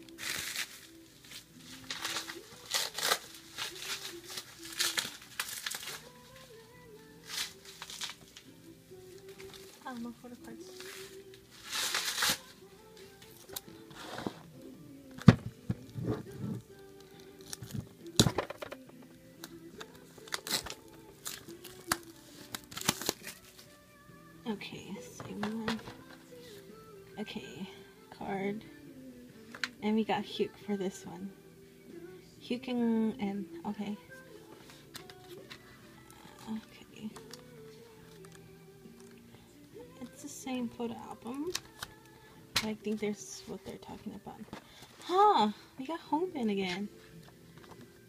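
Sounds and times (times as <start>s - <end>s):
plastic wrapping crinkling: 0.0s - 8.5s, 9.2s - 13.7s, 15.8s - 18.4s, 19.8s - 23.7s
faint music: 0.0s - 48.0s.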